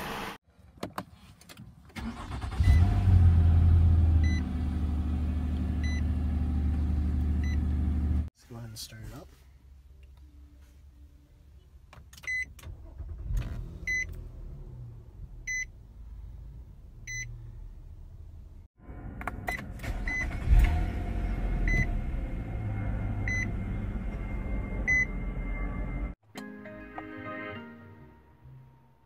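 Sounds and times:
car warning chime beeping: 23.2 - 23.6, 24.2 - 25.2.

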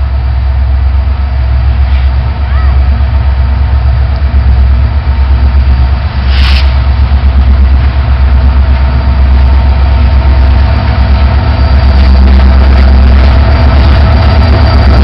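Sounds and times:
diesel locomotive engine rumbling: 0.0 - 15.0
short hiss: 6.2 - 6.9.

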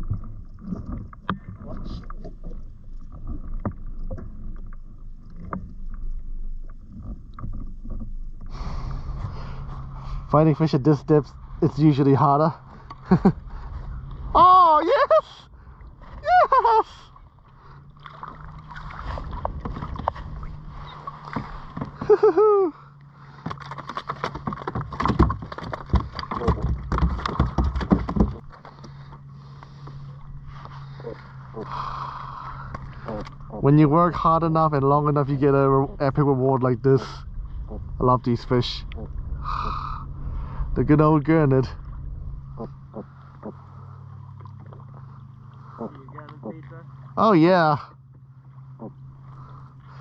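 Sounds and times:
low steady hum: 0.0 - 50.0
water lapping at hull: 0.0 - 50.0
fishing gear clicks and knocks: 23.4 - 29.0.

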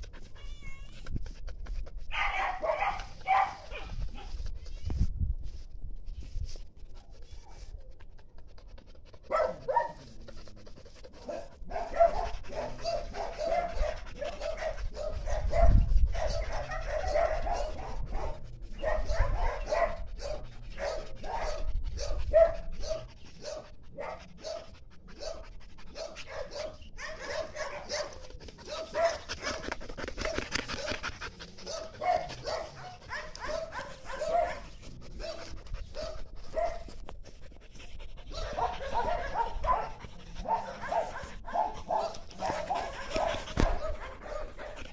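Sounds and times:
dog panting: 0.0 - 4.9, 7.0 - 44.9
dog barking and whimpering: 2.1 - 4.4, 9.3 - 10.1, 11.2 - 36.9, 38.3 - 44.9.

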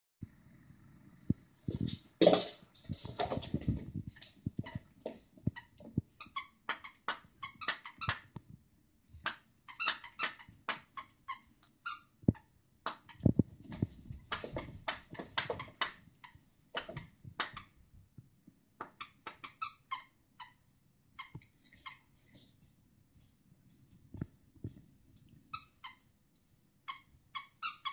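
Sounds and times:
squeaky toy squeaks: 5.6 - 8.3, 9.2 - 12.2, 19.0 - 20.6, 25.5 - 26.1, 26.9 - 27.9.

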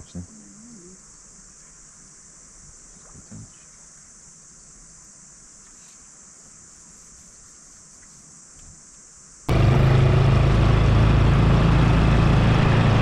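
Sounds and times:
engine running: 9.5 - 13.0.

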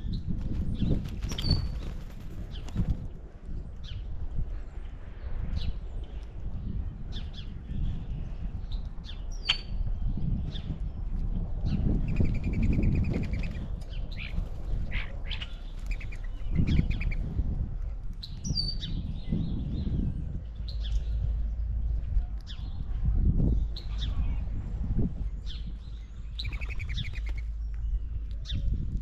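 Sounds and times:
steady low rumble: 0.0 - 29.0
birds chirping: 7.0 - 17.3, 18.2 - 29.0.

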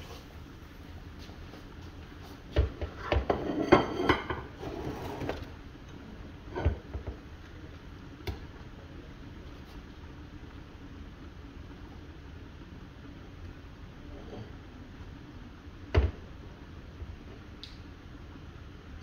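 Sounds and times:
pot simmering hiss: 0.0 - 19.0
cookware clinks and knocks: 3.2 - 4.5.

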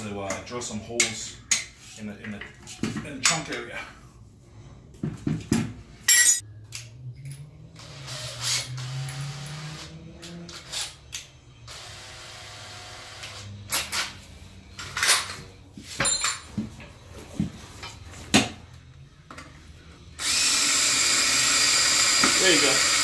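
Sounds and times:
tools clinking: 6.1 - 7.5, 14.8 - 16.9.

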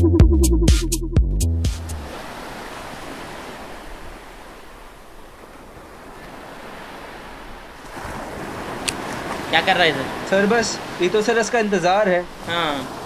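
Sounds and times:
electronic background music: 0.0 - 2.0
wind: 1.8 - 13.0
sea surf on rocky shore: 1.9 - 13.0.

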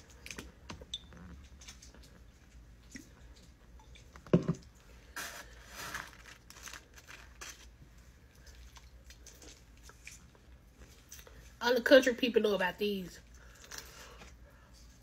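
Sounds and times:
foam box crinkling and rustling: 5.2 - 7.8.

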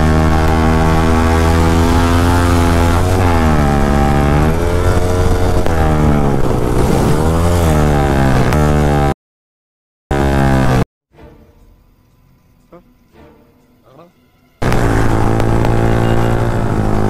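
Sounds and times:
motorcycle engine running hard: 0.0 - 9.1, 14.6 - 17.0.

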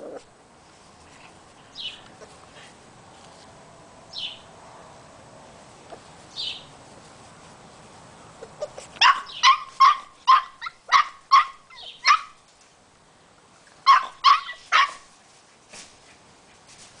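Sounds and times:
puppy yipping: 8.4 - 12.4, 13.8 - 15.1.

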